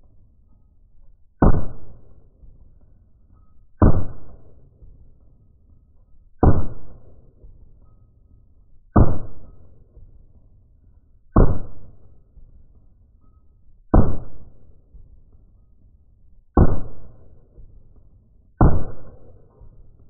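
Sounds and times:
slowed gunshots with rumbling decay: 1.3s - 3.0s, 3.8s - 5.2s, 6.3s - 7.8s, 8.8s - 10.4s, 11.2s - 12.8s, 13.9s - 15.4s, 16.5s - 20.0s.

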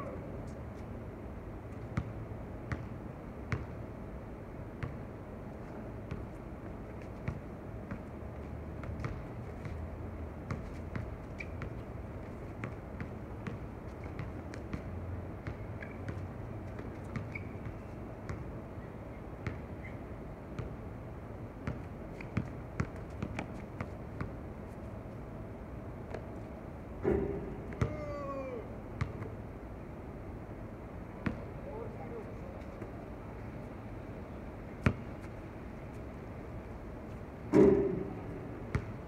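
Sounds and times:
steady low hum: 0.0s - 39.0s
basketball bouncing on hard court: 2.7s - 2.9s, 19.4s - 19.7s, 38.7s - 39.0s.

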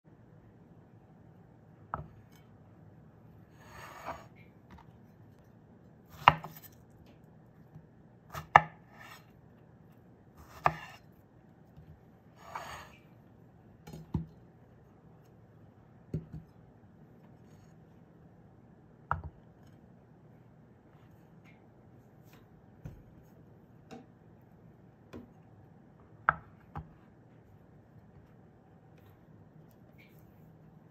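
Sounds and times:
knife scraping board: 3.5s - 4.4s, 8.3s - 9.3s, 10.4s - 11.0s, 12.4s - 13.0s.

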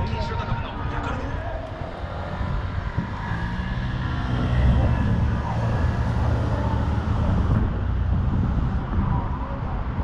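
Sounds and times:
city street noise: 0.0s - 10.0s
vehicle engine rumbling: 0.0s - 10.0s.

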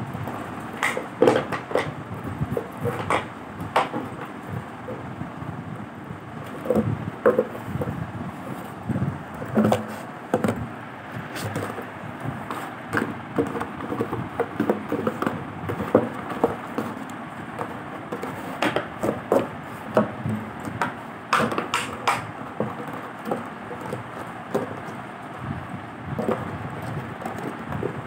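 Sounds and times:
dog chewing plastic bottle: 0.3s - 4.3s.

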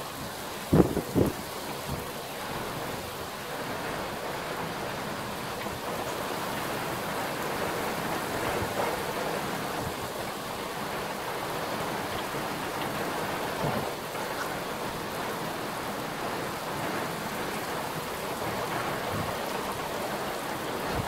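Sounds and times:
heavy rain pouring: 0.0s - 21.0s.

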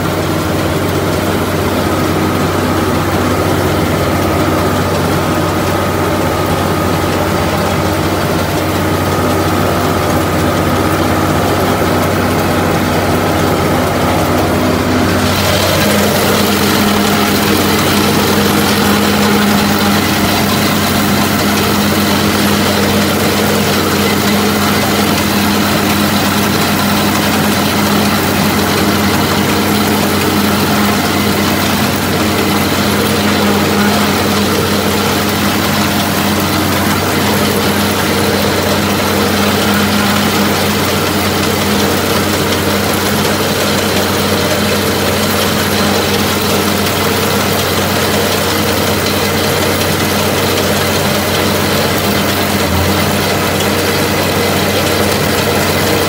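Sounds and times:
baler machinery running: 0.0s - 56.0s
tractor diesel engine running: 0.0s - 56.0s.

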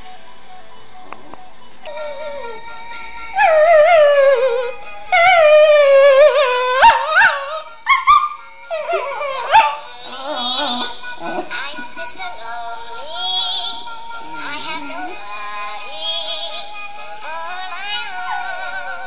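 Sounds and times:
music: 0.0s - 19.0s
dog howling: 1.9s - 11.9s
dog yipping: 3.4s - 11.7s.

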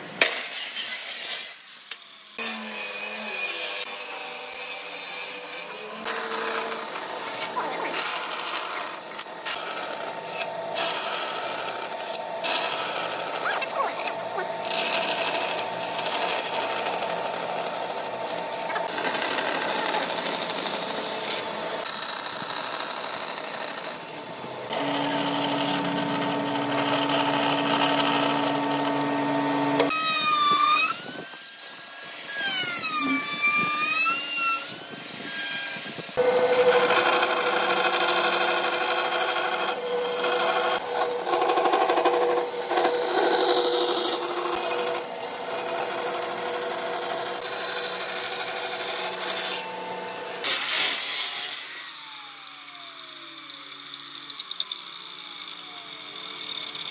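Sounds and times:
band saw cutting wood: 0.0s - 56.9s.

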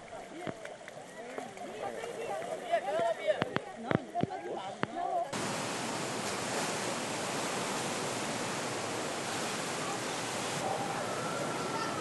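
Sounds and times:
floodwater rushing: 5.3s - 12.0s.

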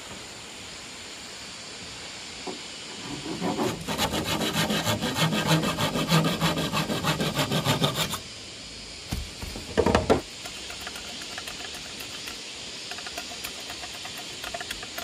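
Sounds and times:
handsaw cutting bamboo: 3.2s - 8.2s, 10.4s - 15.0s.

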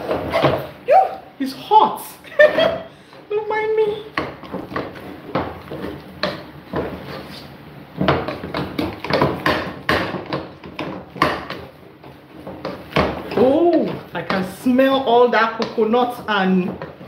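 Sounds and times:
utensil mashing in a pot: 4.0s - 17.0s.

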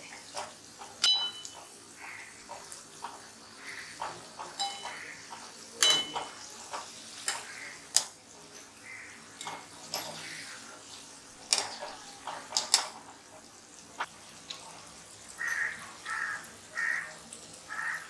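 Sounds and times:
deep-frying sizzle in oil: 0.0s - 18.0s
skimmer clinking against pan: 0.3s - 1.8s, 4.0s - 7.6s, 9.4s - 10.4s.

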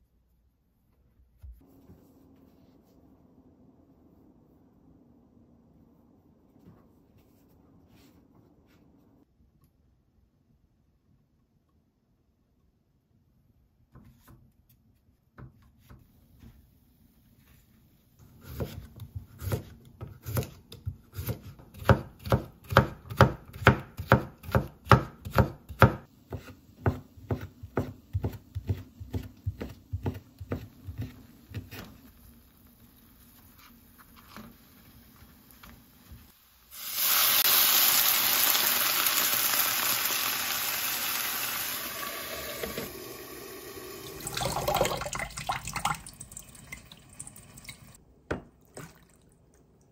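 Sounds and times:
knife chopping on wooden board: 18.4s - 31.9s
frying pan sizzle: 30.4s - 48.0s.

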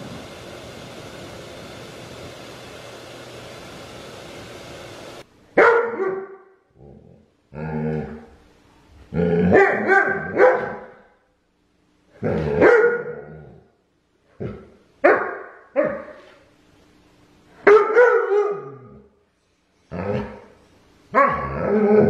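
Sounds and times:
dog barking and yowling: 5.6s - 6.5s, 9.4s - 11.0s, 12.5s - 13.6s, 15.0s - 16.2s, 17.6s - 19.0s, 21.1s - 22.0s.

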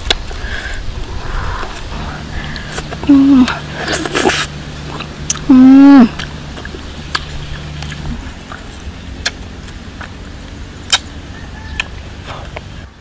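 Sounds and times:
woman humming mmm: 3.0s - 4.4s, 5.4s - 6.2s
fruit snapping off twigs: 6.2s - 10.2s, 10.8s - 11.1s.

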